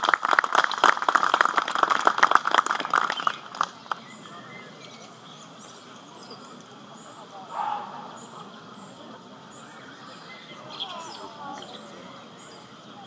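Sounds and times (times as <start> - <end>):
audience applause: 0.0 - 4.0.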